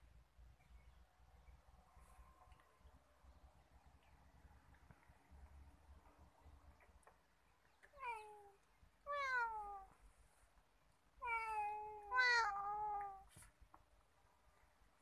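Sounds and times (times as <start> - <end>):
cat meowing: 8.0 - 9.9, 11.2 - 13.3.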